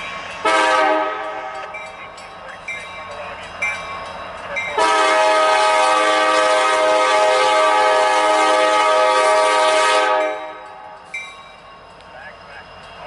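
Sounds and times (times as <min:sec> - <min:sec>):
locomotive air horn blast: 0:00.4 - 0:01.4, 0:04.8 - 0:10.6.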